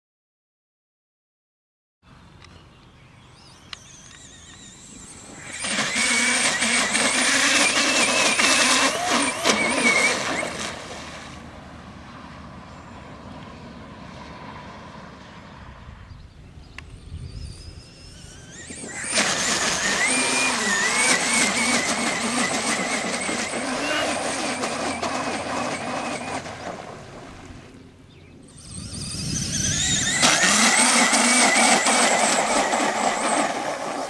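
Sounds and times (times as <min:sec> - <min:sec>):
electric motor whining: 0:03.4 - 0:10.9, 0:16.7 - 0:27.7, 0:28.3 - 0:34.0.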